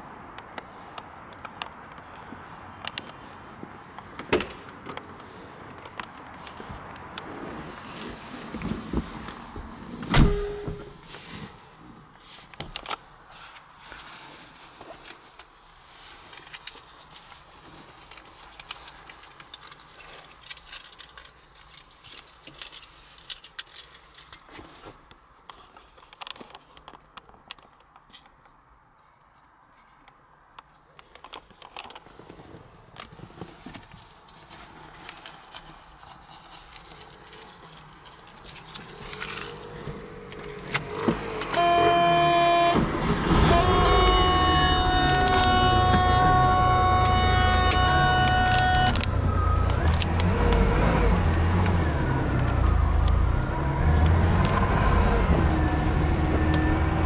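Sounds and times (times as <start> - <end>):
keys jingling: 18.6 - 24.5
car engine starting and idling: 39.0 - 57.0
loud steady whine: 41.5 - 50.0.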